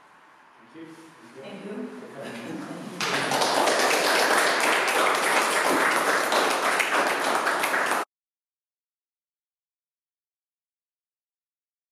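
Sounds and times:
small group applauding: 3.0 - 8.1.

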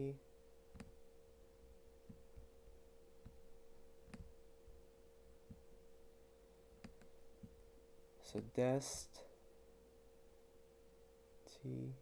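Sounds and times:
faint hum-like tone: 0.0 - 12.0
computer mouse clicks: 0.7 - 1.0, 4.0 - 4.3, 6.8 - 7.6.

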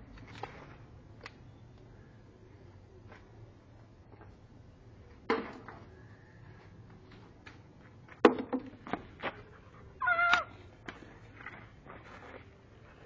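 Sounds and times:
animal high drawn cry: 10.0 - 10.5
animal sharp cry: 10.0 - 10.5.

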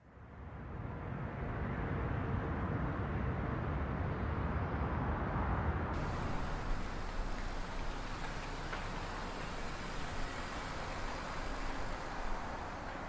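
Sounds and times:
car engine rumbling: 6.0 - 13.0
street noise hiss: 6.0 - 13.0.

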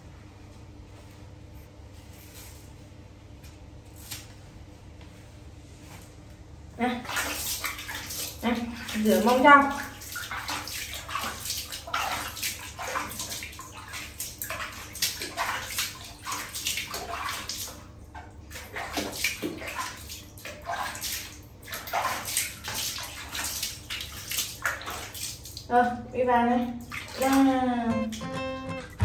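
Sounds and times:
water splashing: 6.8 - 25.7, 26.8 - 29.0
water trickling onto tiled floor: 7.1 - 17.8, 18.5 - 25.8.

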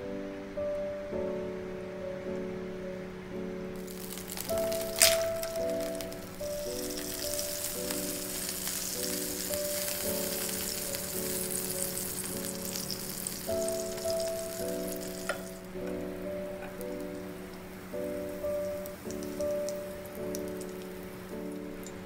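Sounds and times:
background music with held notes: 0.0 - 22.0
patty sizzling in oil: 3.8 - 15.7, 18.0 - 22.0.

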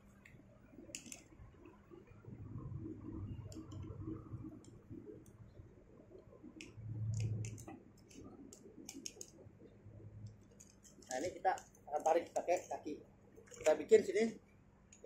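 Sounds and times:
low rumble: 2.2 - 5.1.

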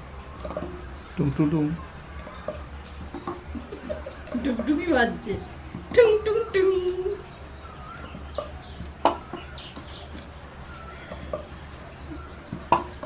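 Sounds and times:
paper cups tapped on table: 2.5 - 6.0.

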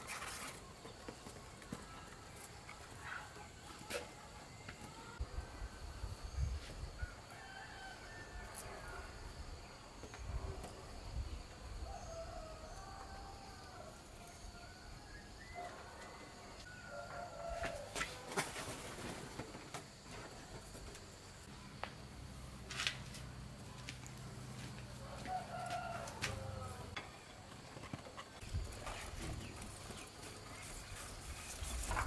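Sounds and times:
rooster crowing faintly: 6.9 - 9.3, 11.8 - 14.0, 14.6 - 18.6, 25.0 - 27.0.

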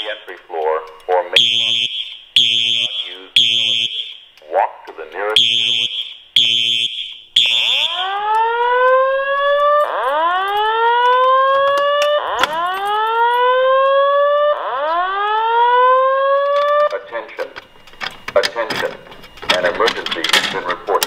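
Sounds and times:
fire alarm horn blast: 1.0 - 4.3, 5.2 - 17.5
whoop alarm tone: 6.9 - 16.9.

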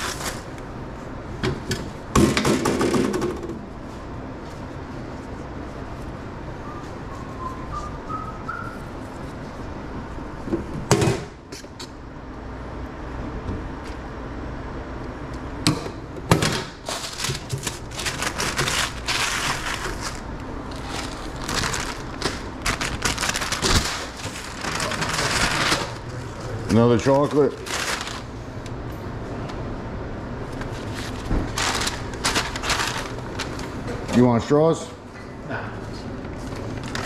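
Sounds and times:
paper bag crinkling: 16.6 - 28.4, 30.6 - 33.8, 36.6 - 37.0.

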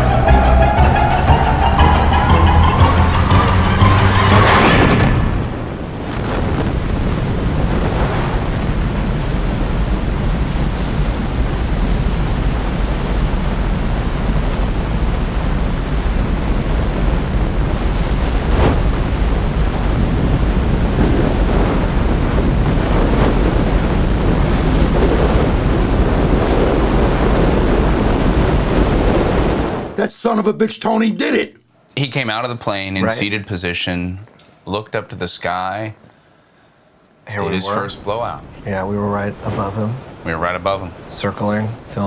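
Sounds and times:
wind buffeting microphone: 5.0 - 30.0.

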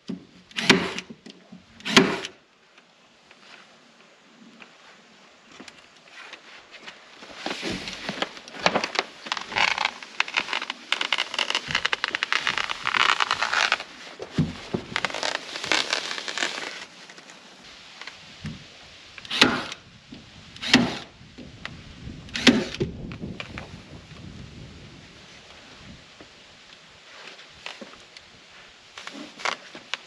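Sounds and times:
power stapler snapping: 0.5 - 1.1, 1.8 - 2.3, 19.3 - 19.8, 20.6 - 21.1, 22.3 - 22.9
plastic sheet crinkling and rustling: 6.2 - 18.2, 27.1 - 30.0.

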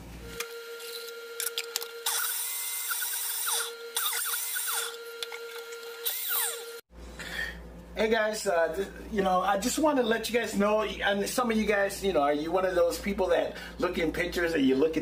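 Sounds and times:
blender motor whirring: 0.4 - 6.8.

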